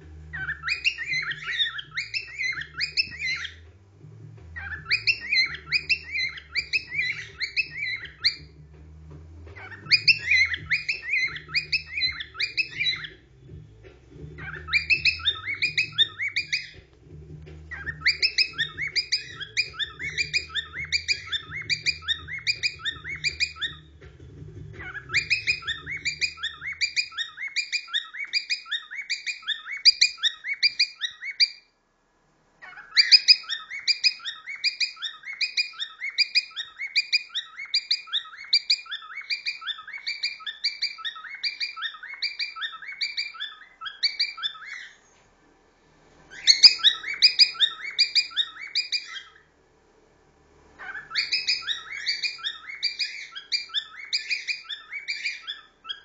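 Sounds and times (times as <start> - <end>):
cockatiel whistling song: 0.1 - 3.7, 4.5 - 8.7, 9.4 - 31.8, 32.6 - 45.2, 46.3 - 49.5, 50.8 - 56.0.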